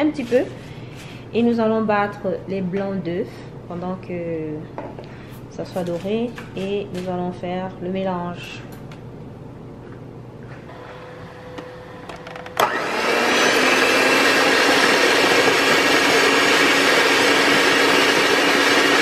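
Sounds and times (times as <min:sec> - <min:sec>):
electric mixer whipping egg whites: 0:10.7 - 0:19.0.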